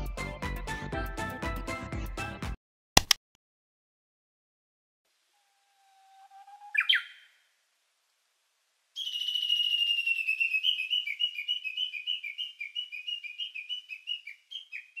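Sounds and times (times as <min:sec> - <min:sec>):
high whistled trill of chirps: 0:05.3 - 0:07.3, 0:09.0 - 0:15.0.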